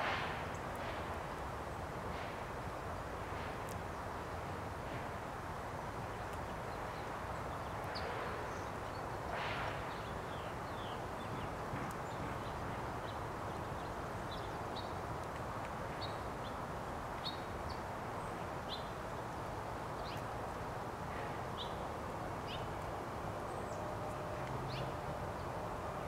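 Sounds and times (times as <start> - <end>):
steady background hiss: 0.0 - 26.0
small birds chirping: 5.8 - 16.6.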